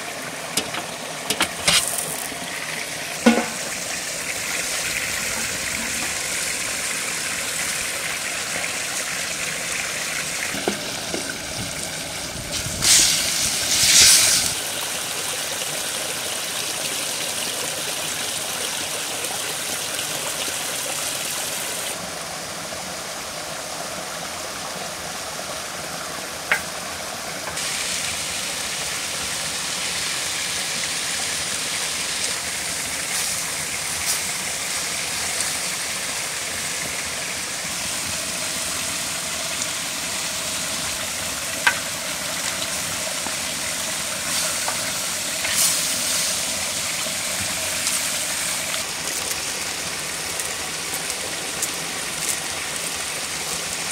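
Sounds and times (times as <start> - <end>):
chicken sizzling in a pan: 12.5 - 14.7, 27.5 - 35.6, 40.8 - 49.5.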